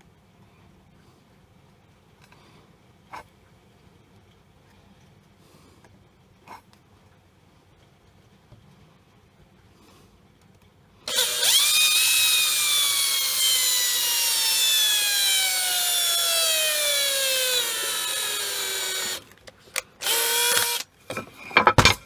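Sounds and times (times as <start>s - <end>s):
electric drill boring into wood: 11.1s - 19.4s, 20.0s - 20.9s.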